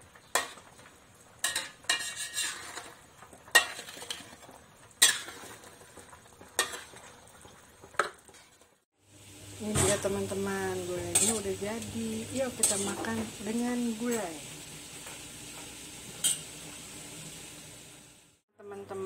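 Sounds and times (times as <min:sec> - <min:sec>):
metal spoon scraping a pot: 0:01.4 - 0:05.6, 0:11.0 - 0:13.3.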